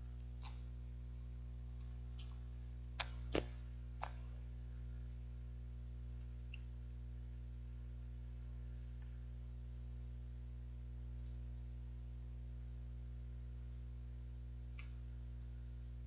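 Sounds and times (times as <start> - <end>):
low electrical hum: 0.0 - 16.0
mouth clicks and lip smacks: 0.4 - 0.7, 1.8 - 2.4, 3.0 - 4.3, 6.4 - 6.7.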